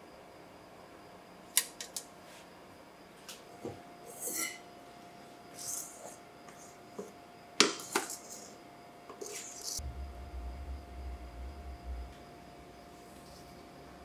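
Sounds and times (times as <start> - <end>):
utensil scraping metal bowl: 4.1 - 4.6, 9.2 - 9.8
low rumble: 9.8 - 12.9.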